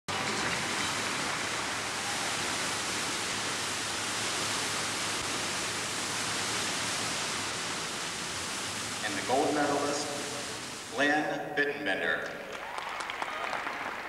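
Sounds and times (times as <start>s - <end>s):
recording noise hiss: 0.1s - 14.0s.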